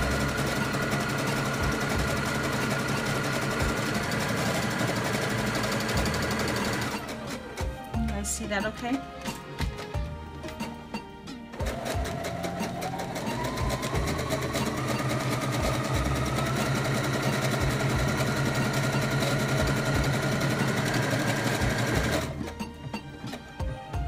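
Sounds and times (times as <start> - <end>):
sewing machine stitching: 0.0 - 7.8, 11.5 - 22.7.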